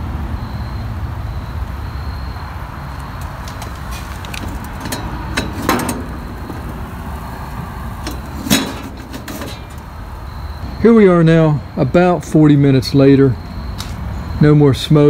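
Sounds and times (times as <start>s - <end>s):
steady low rumble: 2.7s - 10.8s
metal clinks and knocks: 3.4s - 10.0s.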